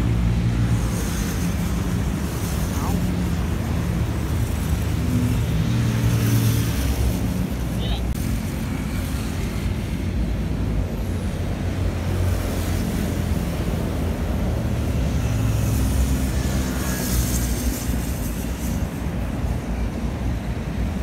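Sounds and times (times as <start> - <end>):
road traffic: 0.0 - 21.0.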